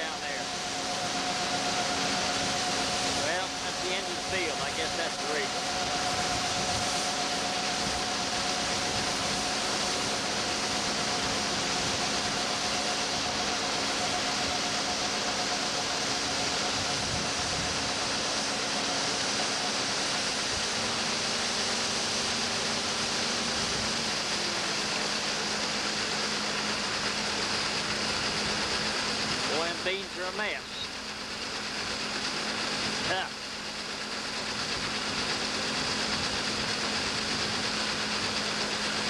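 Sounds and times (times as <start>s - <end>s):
combine harvester mechanical rush: 0.0s - 39.0s
machine hums: 0.0s - 39.0s.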